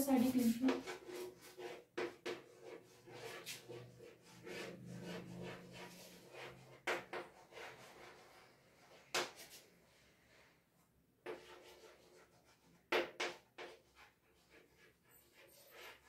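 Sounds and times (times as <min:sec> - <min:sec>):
chalk scratching on chalkboard: 0:00.0 - 0:09.7, 0:11.2 - 0:16.0
chalk tapping: 0:00.2 - 0:03.8, 0:11.2 - 0:14.7.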